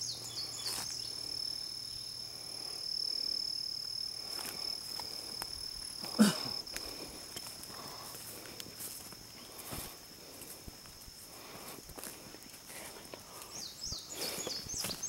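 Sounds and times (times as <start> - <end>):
leaves and brush rustling: 0.0 - 2.9, 3.5 - 15.0
crickets trilling: 0.0 - 15.0.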